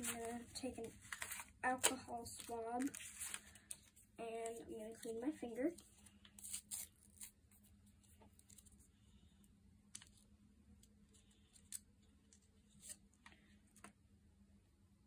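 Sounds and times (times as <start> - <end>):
packet tearing open: 6.4 - 7.4.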